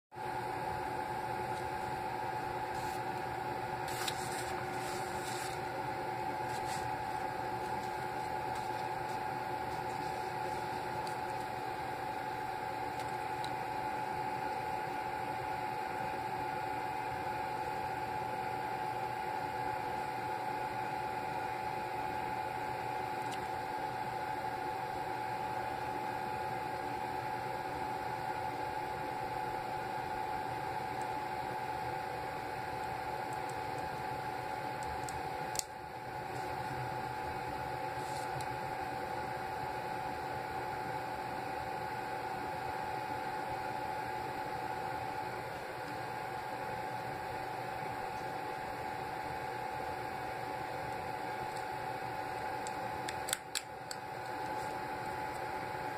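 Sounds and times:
hair dryer motor whine: 0:00.2 - 0:55.9
rustle of handling: 0:03.8 - 0:05.8, 0:06.4 - 0:11.5.

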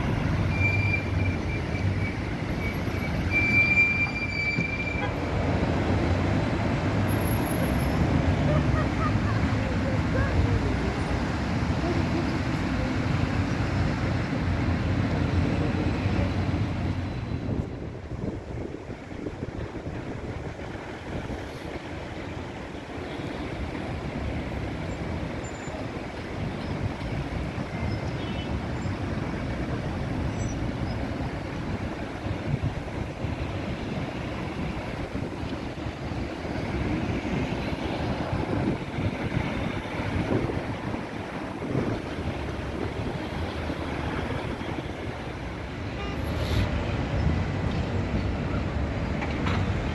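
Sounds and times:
road traffic: 0:00.0 - 0:49.9
tram rumbling on rails: 0:00.0 - 0:49.9
wind rumbling on microphone: 0:17.2 - 0:22.5, 0:31.2 - 0:45.6.

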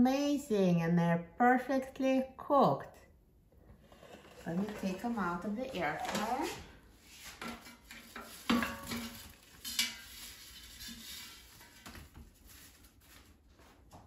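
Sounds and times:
utensils scraping metal basket: 0:07.3 - 0:11.9.

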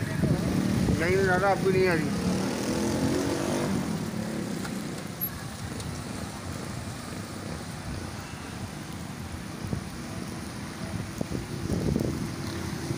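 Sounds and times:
rain: 0:00.0 - 0:12.9
traffic on a wet road: 0:00.0 - 0:12.9
motorcycle engine passing: 0:01.9 - 0:05.0.

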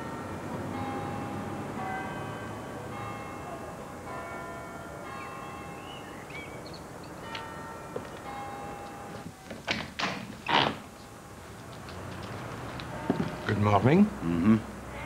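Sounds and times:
church bells ringing: 0:00.0 - 0:09.7, 0:12.8 - 0:15.0.

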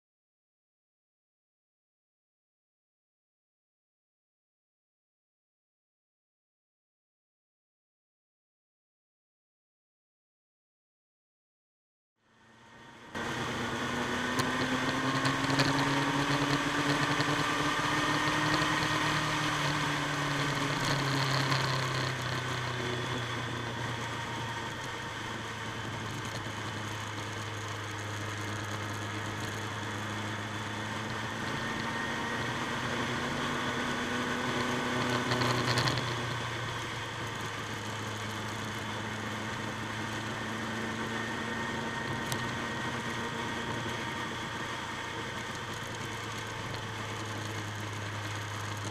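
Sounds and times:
motorcycle engine running: 0:12.3 - 0:48.9
wind and road noise: 0:12.3 - 0:48.9.

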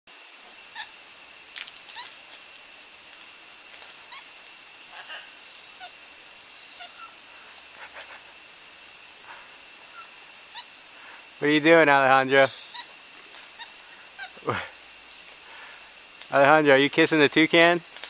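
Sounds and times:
high-pitched drone of insects: 0:00.1 - 0:18.0
short chirping animal calls: 0:00.7 - 0:01.0, 0:01.9 - 0:02.2, 0:04.0 - 0:08.4, 0:09.2 - 0:10.8, 0:12.4 - 0:14.5.

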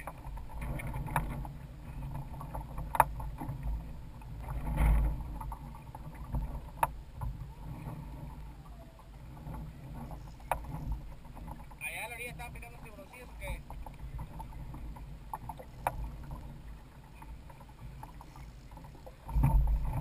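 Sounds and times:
water lapping against hull: 0:00.0 - 0:20.0
wind rumble on microphone: 0:00.0 - 0:20.0
sharp knocks and clicks: 0:02.4 - 0:03.7, 0:09.5 - 0:11.7.

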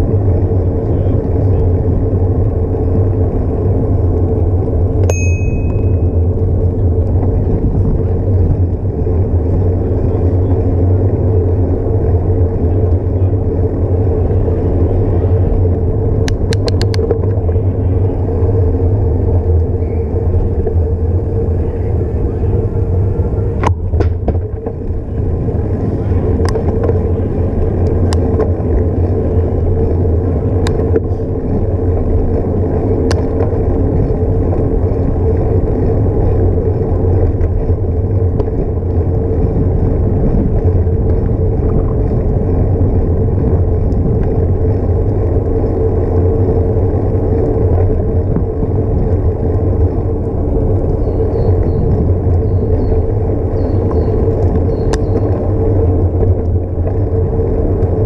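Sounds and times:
wind and road rumble: 0:00.0 - 0:58.0
sharp clicks from bumps: 0:04.9 - 0:21.4, 0:23.5 - 0:58.0.

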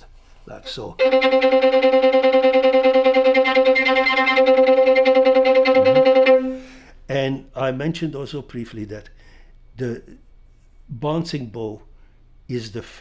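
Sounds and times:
violin bouncing bow notes: 0:01.0 - 0:06.8.

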